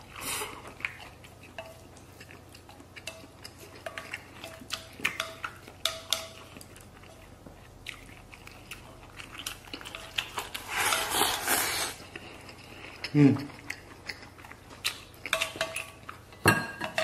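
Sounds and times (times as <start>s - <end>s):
person chewing food: 0.0s - 17.0s
chopsticks clicking on metal bowl: 3.9s - 6.4s
rice shoveled into mouth: 10.6s - 12.0s.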